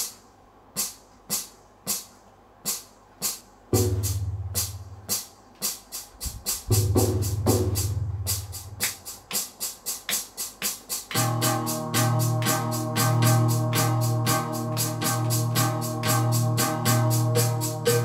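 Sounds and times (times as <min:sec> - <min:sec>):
electronic percussion hits: 0:11.1 - 0:18.0.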